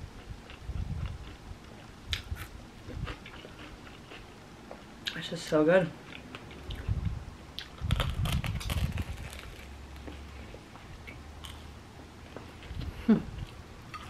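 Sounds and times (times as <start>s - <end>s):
chewing: 0.2s - 4.4s
crunching bread sandwich: 7.6s - 10.2s.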